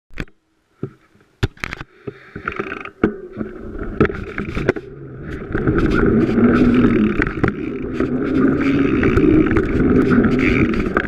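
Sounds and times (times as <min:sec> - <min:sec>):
bike rattling: 0:02.4 - 0:11.0
bike tyres rolling on leaves: 0:05.4 - 0:11.0.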